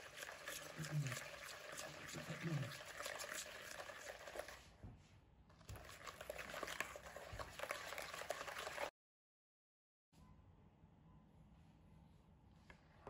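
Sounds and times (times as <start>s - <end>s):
eggs whisked in a bowl: 0.0s - 4.8s, 5.5s - 8.9s.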